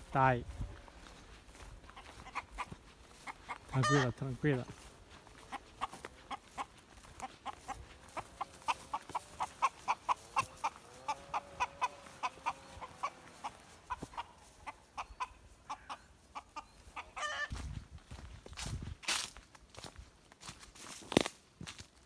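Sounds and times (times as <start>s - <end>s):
chicken clucking: 0.2s - 17.7s.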